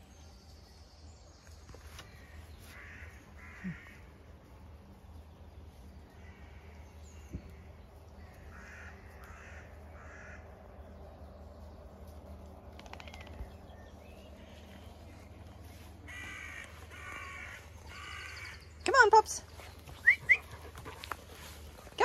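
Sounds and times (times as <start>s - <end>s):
crows cawing: 2.7s - 4.2s, 6.1s - 6.8s, 8.2s - 10.5s, 16.1s - 18.6s.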